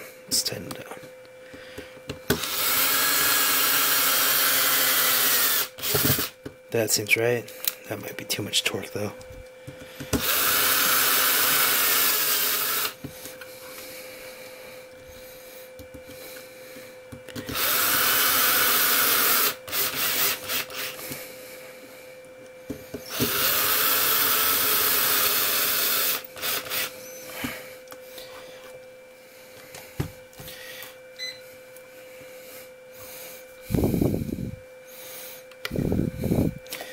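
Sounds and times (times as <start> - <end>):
power screwdriver whirring: 2.3 - 6.3, 10.1 - 13.0, 17.4 - 21.0, 23.0 - 27.2.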